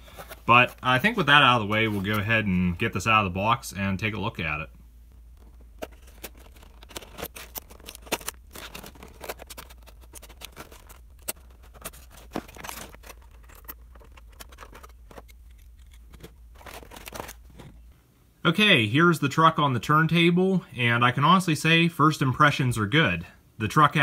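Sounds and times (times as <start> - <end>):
plastic packaging crackling: 5.4 - 17.9.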